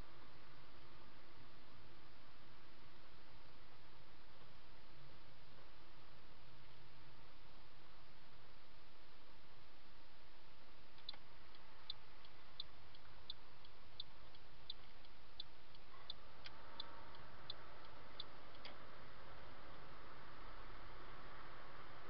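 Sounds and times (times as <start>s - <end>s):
road and cabin noise hiss: 0.0s - 22.0s
turn signal clicking: 11.0s - 18.8s.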